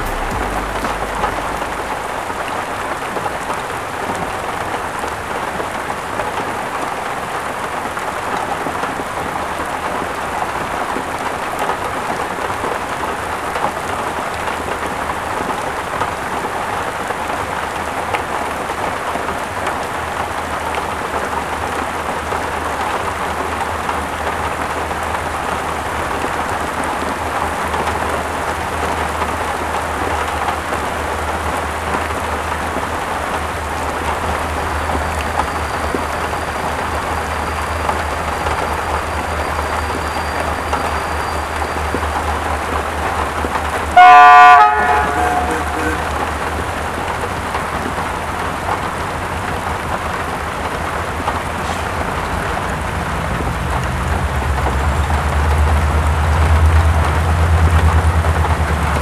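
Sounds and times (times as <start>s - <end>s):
low rumble: 0.0s - 3.6s
heavy rain pouring: 0.0s - 59.0s.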